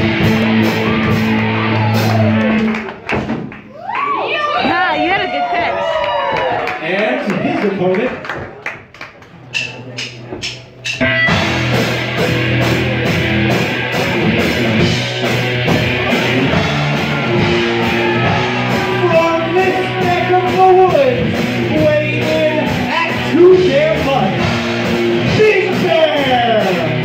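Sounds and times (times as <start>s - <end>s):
rock song over sound system: 0.0s - 2.9s, 10.8s - 27.0s.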